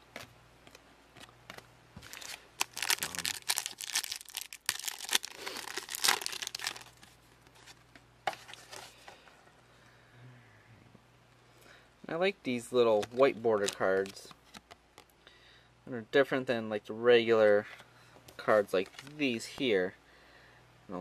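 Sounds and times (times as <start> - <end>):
foil wrapper crinkling: 2.0 - 7.8, 12.9 - 14.3.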